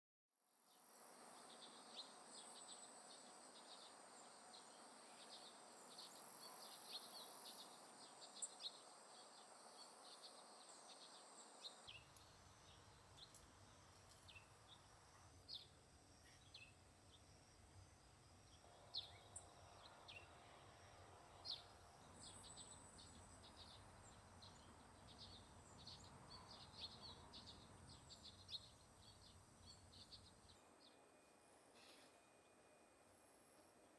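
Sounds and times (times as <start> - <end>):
insect trill: 0.7 - 33.9
bird chirps: 21.4 - 31.0.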